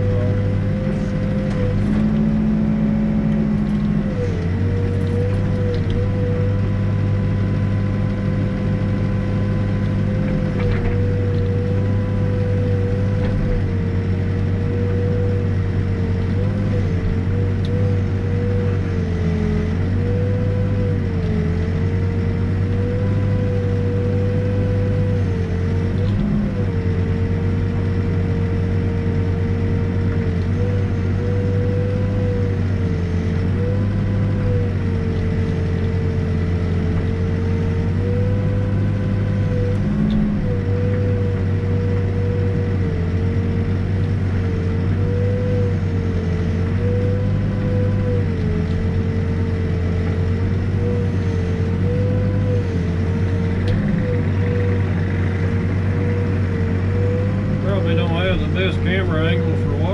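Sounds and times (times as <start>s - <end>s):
backhoe diesel engine running: 0.0s - 59.9s
steady whine: 45.8s - 59.9s.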